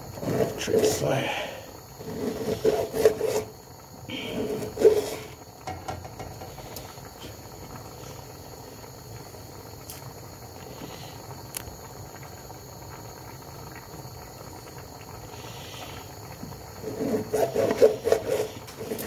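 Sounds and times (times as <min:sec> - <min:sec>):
man making wordless vocal sounds: 0:00.5 - 0:01.7.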